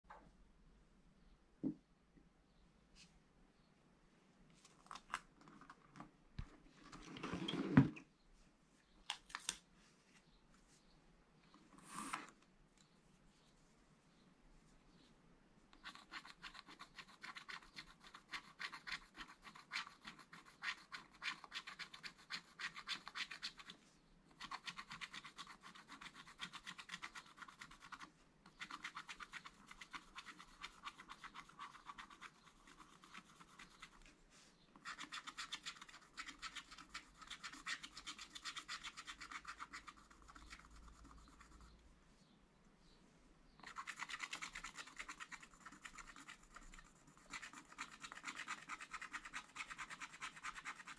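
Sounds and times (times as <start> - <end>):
stylus scratching a card: 15.8 - 23.8, 24.4 - 34.0, 34.8 - 41.7, 43.6 - 50.9.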